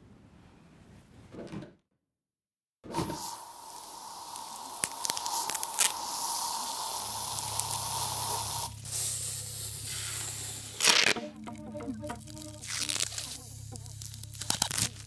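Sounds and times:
hissing noise: 2.9s - 15.0s
steady high tone: 11.2s - 14.2s
low hum: 11.2s - 15.0s.

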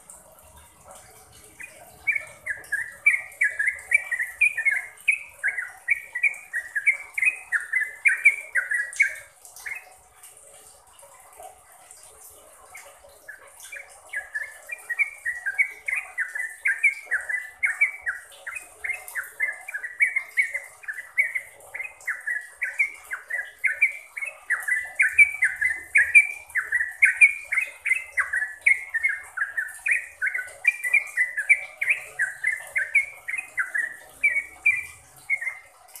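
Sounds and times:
bird singing fast notes: 0.0s - 9.9s, 13.2s - 36.0s.

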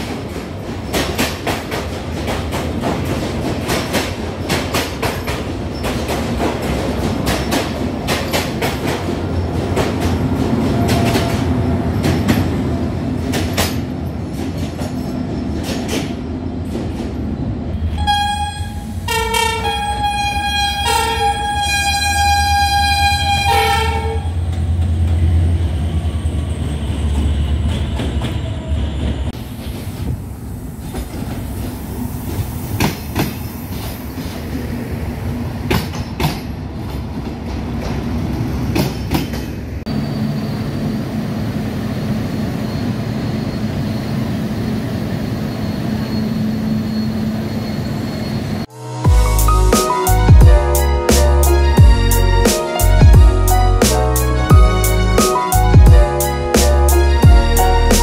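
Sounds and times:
train rumbling: 0.0s - 58.0s
train horn blasts: 17.8s - 24.5s, 48.7s - 58.0s.

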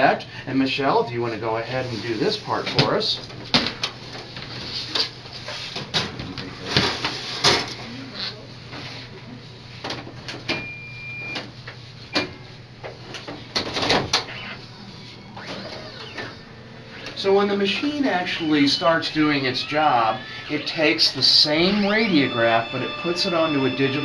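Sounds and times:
steady low hum: 10.6s - 24.0s
electronic beep: 15.2s - 24.0s.

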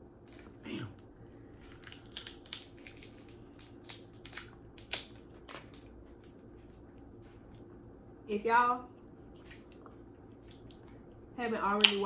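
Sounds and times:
seafood shells cracking: 1.6s - 6.4s.

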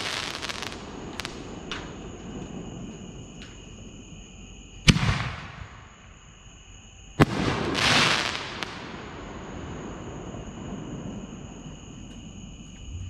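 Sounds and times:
firework bangs: 0.0s - 3.8s, 4.8s - 6.1s, 7.2s - 11.8s
firework crackle and hiss: 0.0s - 6.5s, 7.2s - 13.0s.

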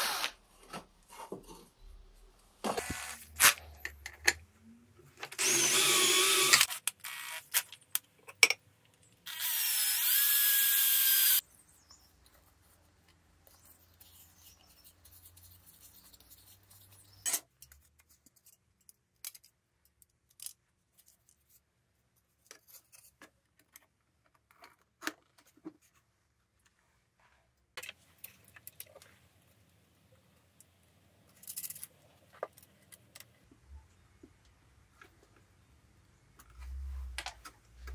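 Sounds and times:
cordless drill running: 5.4s - 7.4s, 9.3s - 11.4s
clicks and knocks of small parts: 17.2s - 21.6s, 30.6s - 33.5s.

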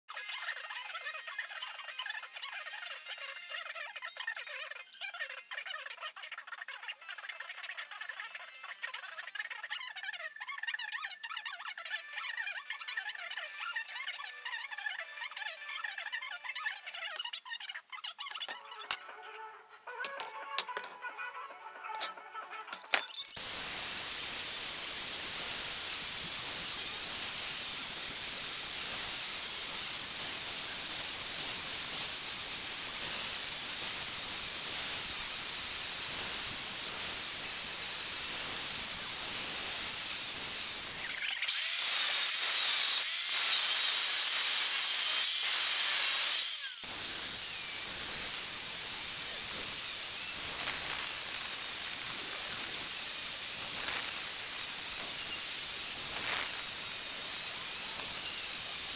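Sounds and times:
angle grinder cutting steel: 22.0s - 58.9s.

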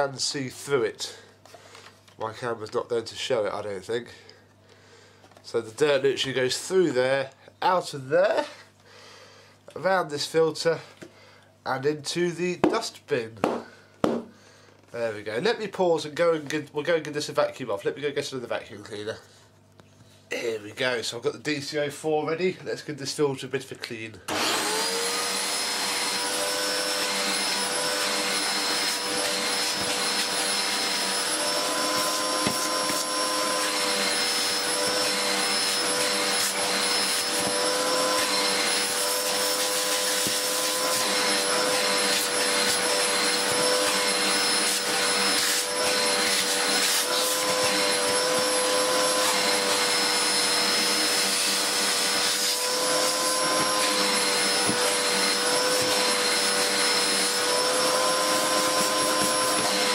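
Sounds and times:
vacuum cleaner motor whine: 24.3s - 59.9s.

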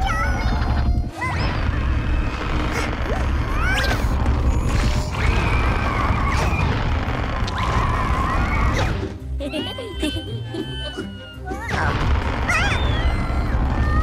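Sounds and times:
high wavering cartoon cries: 0.0s - 2.3s, 9.4s - 11.9s, 12.5s - 14.0s.

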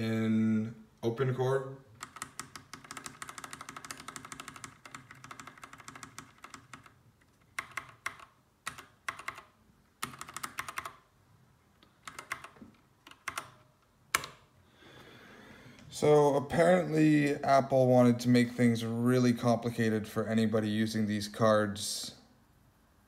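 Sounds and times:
mechanical keyboard keys clicking: 2.0s - 11.0s, 12.0s - 14.4s.

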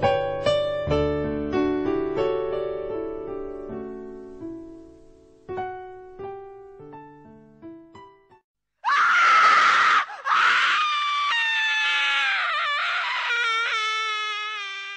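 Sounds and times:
person screaming: 8.8s - 14.9s.

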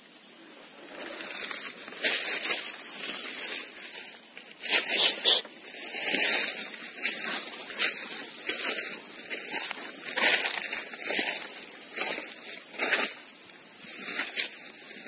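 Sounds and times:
dry leaves rustling and crunching: 0.0s - 15.0s.

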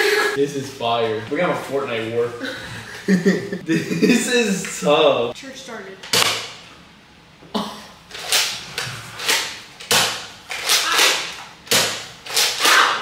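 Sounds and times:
toy blaster shots cracking: 9.3s - 13.0s.

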